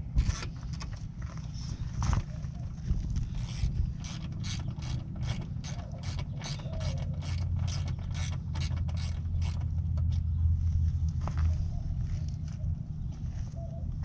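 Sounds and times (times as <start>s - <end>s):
low steady rumble: 0.0s - 14.0s
hand ratchet clicking: 3.4s - 9.6s.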